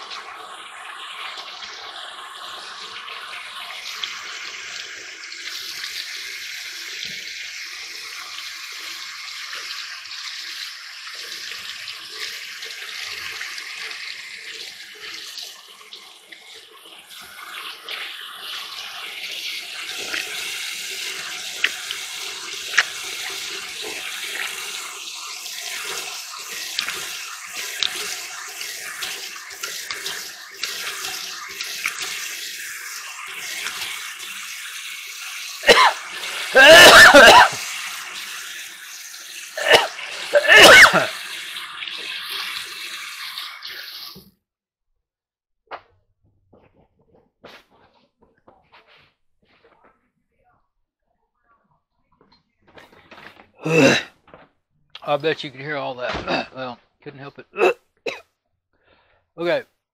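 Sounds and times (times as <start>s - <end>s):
tap water splashing in sink: 0.0s - 44.3s.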